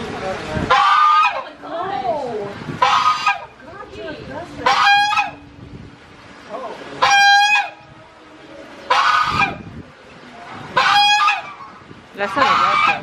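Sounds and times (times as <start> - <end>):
goose honking: 0.7 - 1.6, 2.8 - 3.6, 4.6 - 5.4, 7.0 - 7.8, 8.8 - 9.7, 10.5 - 13.0.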